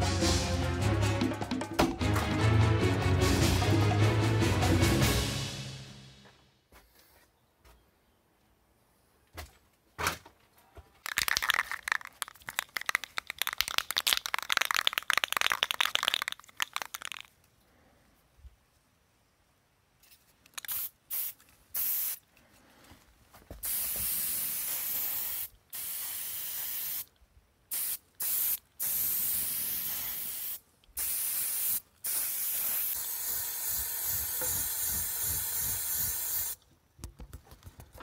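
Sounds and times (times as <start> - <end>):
aerosol spray can spraying: 20.6 - 22.2, 23.6 - 27.1, 27.7 - 36.6.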